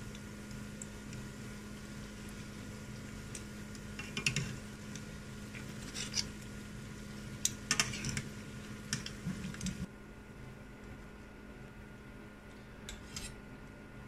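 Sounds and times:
oil sizzling: 0.0 - 9.9.

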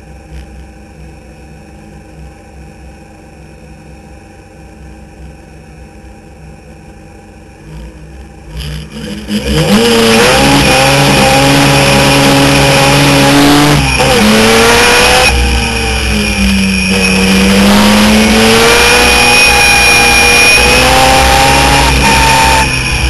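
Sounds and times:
race car rotary engine revving: 7.6 - 23.0.

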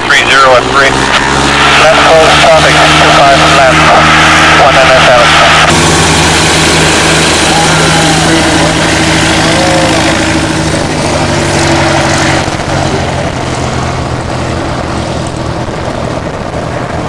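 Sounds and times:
engine drone: 0.0 - 17.0
wind noise on microphone: 13.6 - 17.0.

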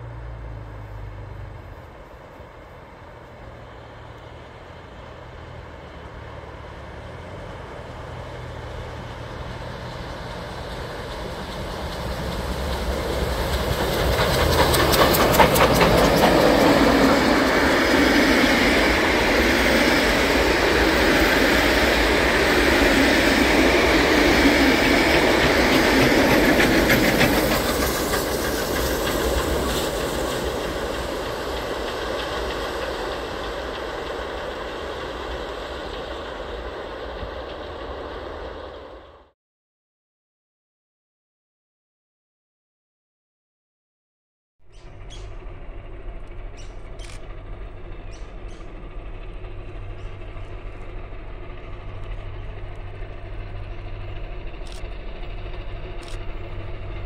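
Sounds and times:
train passing: 0.0 - 39.4, 44.6 - 57.0
wheels clattering over rail joints: 6.8 - 38.5, 44.7 - 57.0.

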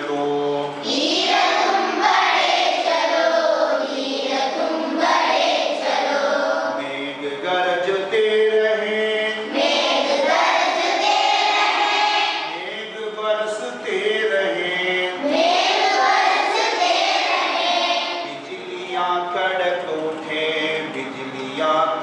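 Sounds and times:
children singing in chorus: 0.8 - 6.9, 9.5 - 12.6, 15.2 - 18.4.

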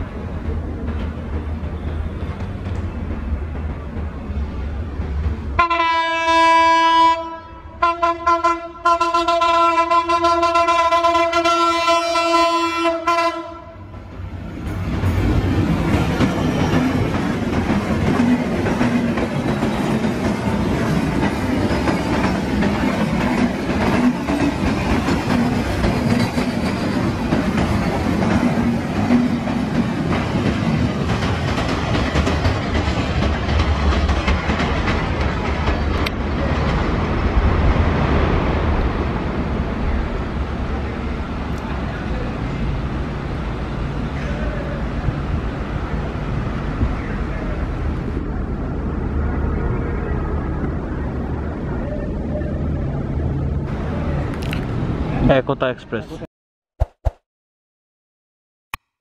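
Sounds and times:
train wheels clattering on rails: 0.0 - 5.6, 14.6 - 37.6
diesel locomotive horn: 5.6 - 14.0.

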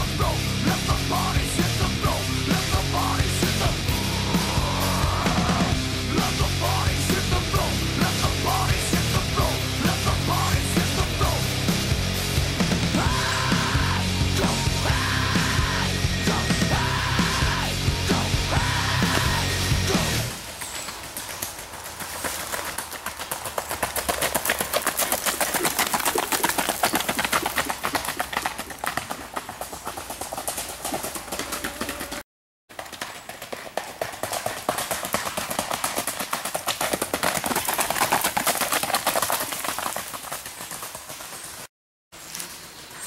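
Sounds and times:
horse hooves on gravel: 19.0 - 42.7.

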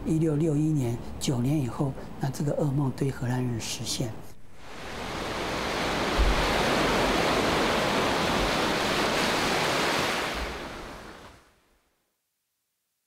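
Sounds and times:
sea waves breaking on beach: 4.6 - 11.5.

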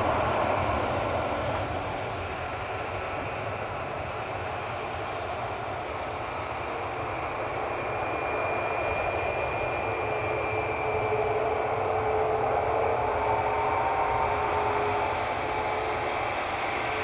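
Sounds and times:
jet engines rumbling and whining: 0.0 - 17.0.

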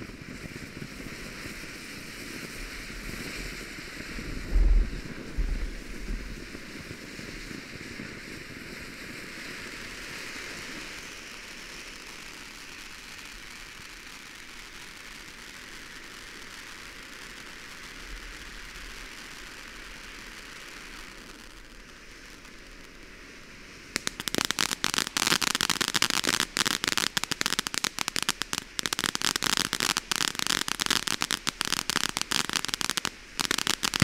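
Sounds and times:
firework fountain hissing: 0.0 - 34.0
dull low thumps: 4.3 - 6.4.

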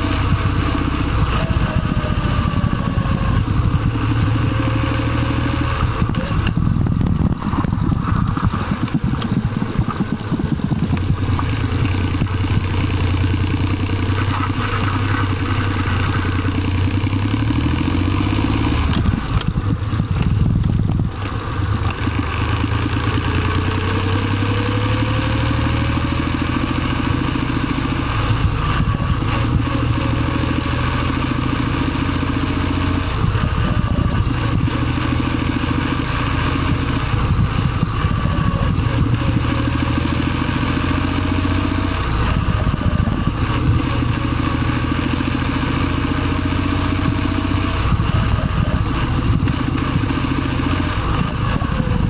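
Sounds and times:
gearbox whine: 0.0 - 22.6
car engine idling: 0.0 - 52.0.

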